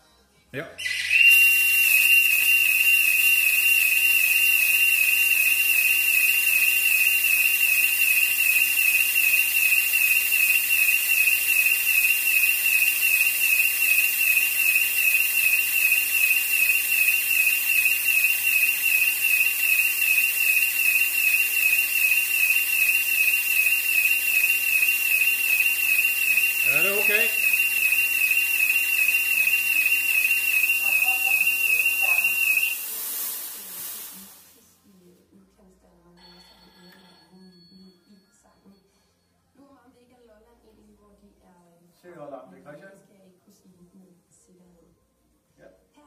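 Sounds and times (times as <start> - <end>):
smoke generator hissing: 1.2 - 34.8
alarm warbling tone: 2.3 - 32.8.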